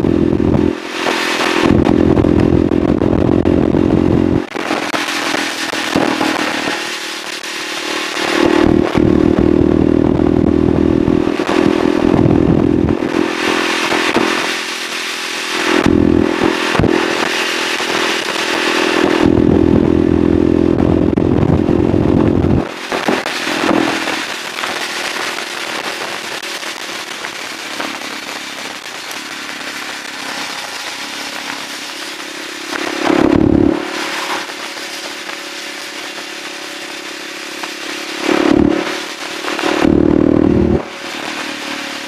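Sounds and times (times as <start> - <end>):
wind noise: 0.0 - 6.8, 8.2 - 14.6, 17.9 - 26.4
motorcycle engine pulling hard: 0.0 - 42.0.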